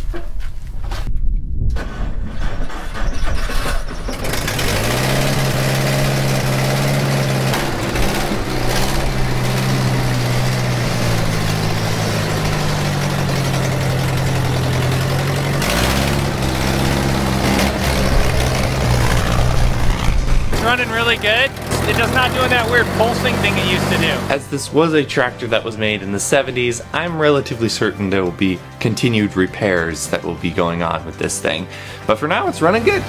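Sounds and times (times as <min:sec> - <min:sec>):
engine cranking and running: 0:01.8 - 0:27.1.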